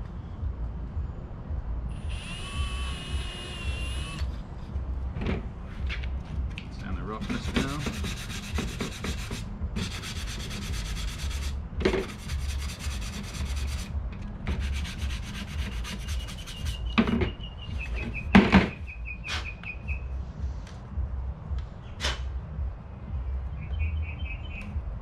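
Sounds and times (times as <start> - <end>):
sanding block on wood: 7.1 - 13.9, 14.5 - 16.9.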